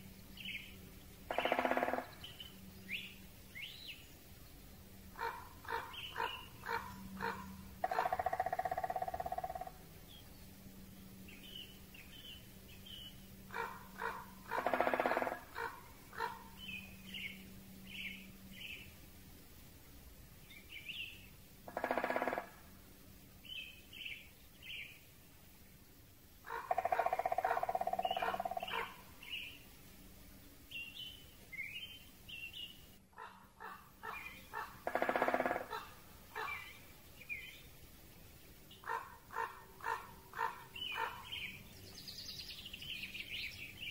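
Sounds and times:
faint steady hiss: 0.0 - 43.9
songbirds chirping: 0.0 - 43.9
raven calling: 1.3 - 2.5, 5.1 - 9.8, 13.5 - 17.3, 21.6 - 22.7, 26.4 - 29.6, 33.1 - 36.8, 38.7 - 41.6.

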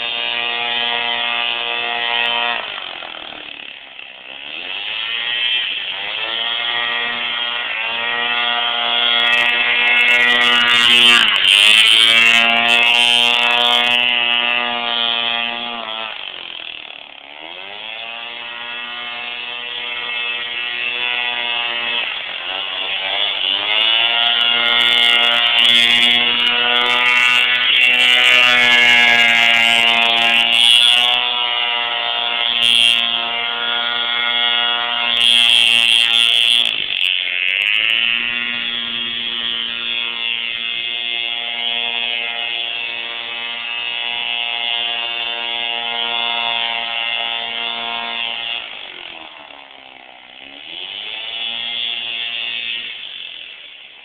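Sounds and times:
two-stroke engine buzzing: 0.0 - 54.0.

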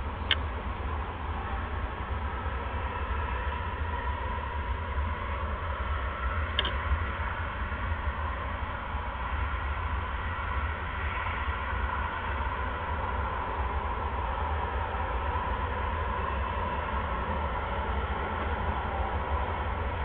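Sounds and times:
low hum: 0.0 - 20.0.

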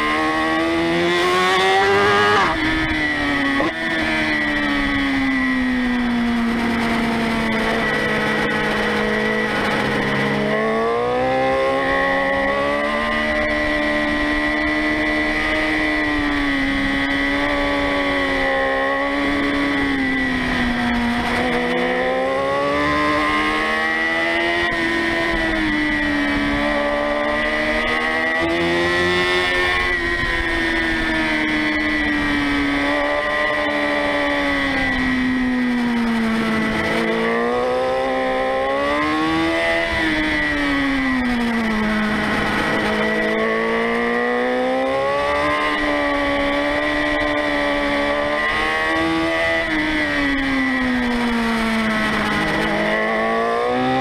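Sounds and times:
low wind rumble: 0.0 - 53.8
motorcycle engine revving: 0.0 - 54.0.

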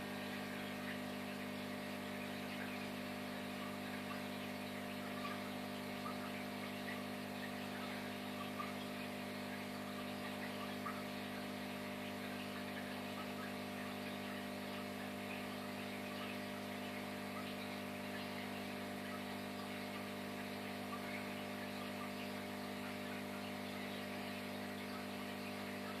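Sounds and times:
air bubbles fizzing: 0.0 - 26.0
aquarium equipment hum: 0.0 - 26.0.

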